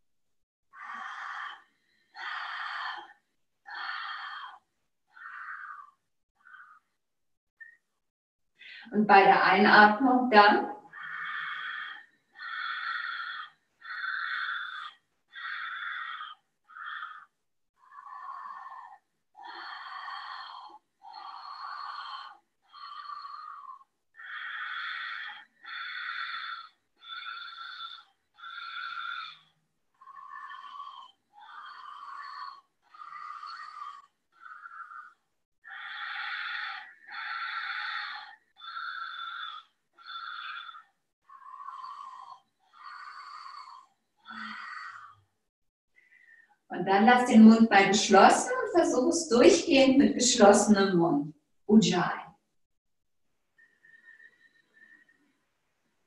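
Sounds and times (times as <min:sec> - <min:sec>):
woman breathing loudly: 0:00.8 - 0:06.8, 0:08.6 - 0:08.9, 0:10.9 - 0:45.2, 0:53.6 - 0:55.4.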